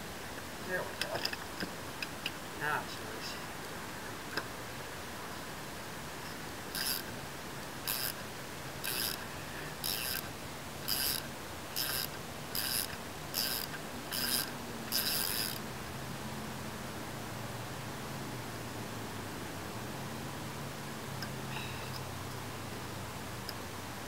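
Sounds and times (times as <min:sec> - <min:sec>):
ratchet wrench clicking: 0:06.8 - 0:07.1, 0:07.8 - 0:08.2, 0:08.8 - 0:09.2, 0:09.8 - 0:15.6.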